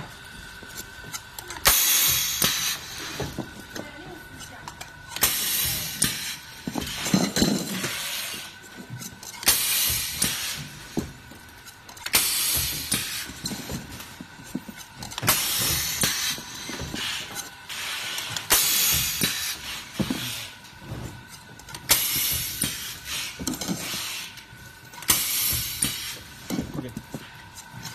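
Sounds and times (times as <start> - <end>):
machinery hissing: 1.6 - 8.6.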